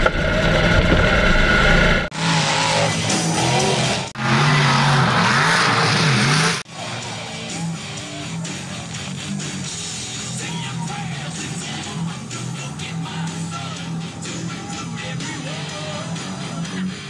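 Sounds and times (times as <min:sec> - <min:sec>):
truck engine revving: 0:00.0 - 0:17.0
rock music with guitar: 0:06.6 - 0:17.0.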